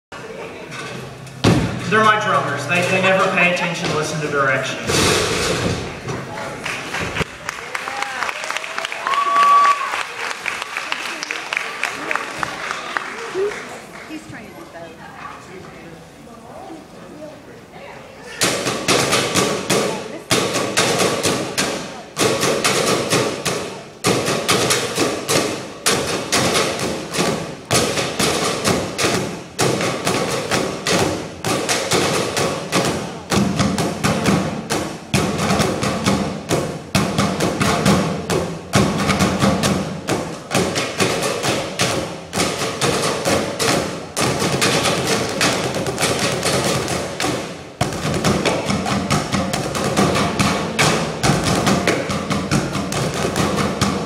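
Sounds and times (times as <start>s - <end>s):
drumsticks hitting trash cans: 18.4s - 54.0s.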